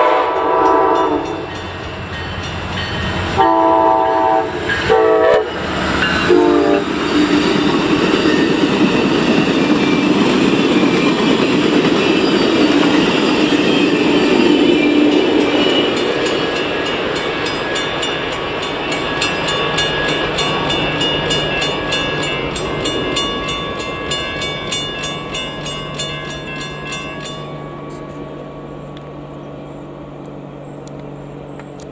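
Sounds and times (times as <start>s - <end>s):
crossing bell ringing: 0.0s - 29.7s
train rumble: 0.0s - 31.9s.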